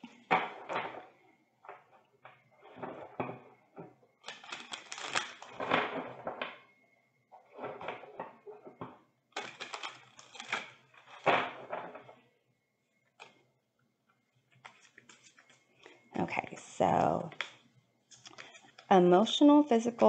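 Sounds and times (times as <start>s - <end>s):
cards shuffling: 4.2s - 5.7s, 9.4s - 11.2s, 14.5s - 15.6s, 17.3s - 18.9s.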